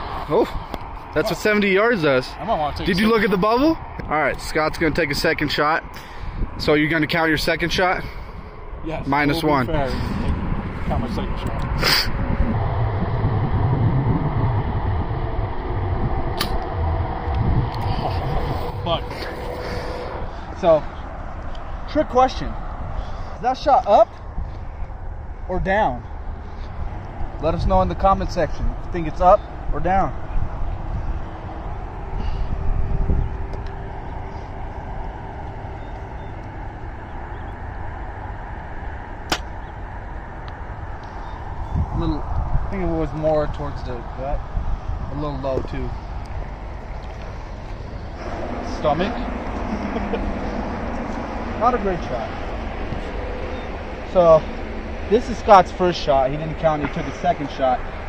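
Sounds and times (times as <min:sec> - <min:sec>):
low background rumble: 0:00.0 - 0:58.0
wind buffeting microphone: 0:00.0 - 0:58.0
bow string snap: 0:16.4 - 0:16.7, 0:39.3 - 0:39.6
sharp click: 0:16.4 - 0:16.7, 0:39.3 - 0:39.5.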